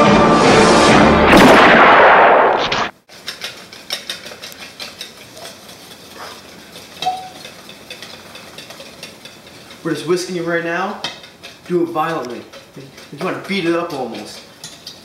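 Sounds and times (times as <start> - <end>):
theme music with rushing burst: 0.0 - 1.3
whisk clicking against plastic bowl: 3.2 - 10.2, 11.0 - 15.0.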